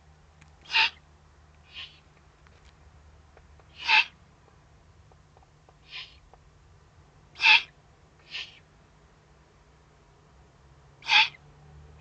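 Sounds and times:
owl raspy hissing calls: 0.6 - 1.0, 1.6 - 2.1, 3.7 - 4.2, 5.8 - 6.2, 7.4 - 8.7, 11.0 - 11.4.

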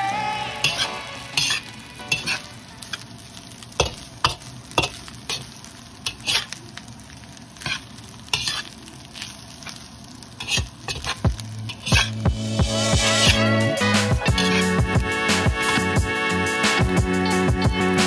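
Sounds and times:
rice sizzling in a pan: 0.0 - 17.8
spatula scraping and knocking pan: 0.6 - 2.4, 7.6 - 8.8, 10.4 - 12.3, 14.2 - 14.8.

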